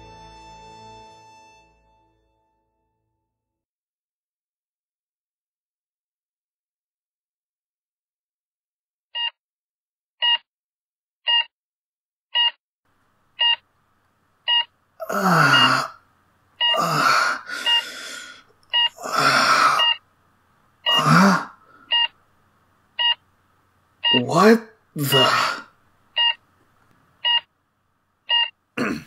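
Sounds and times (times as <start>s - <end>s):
heart monitor beeping: 10.2s - 10.5s, 11.3s - 11.5s, 12.4s - 12.6s, 13.4s - 13.6s, 14.5s - 14.7s, 15.5s - 15.8s, 17.6s - 17.9s, 18.7s - 19.0s, 19.7s - 20.0s, 20.8s - 21.2s, 21.9s - 22.2s, 23.0s - 23.2s, 24.0s - 24.3s, 26.2s - 26.4s, 27.2s - 27.5s, 28.3s - 28.6s
low voice groaning: 15.0s - 16.0s, 16.7s - 17.7s, 19.0s - 19.8s, 20.9s - 21.6s, 24.2s - 25.7s, 28.8s - 29.0s.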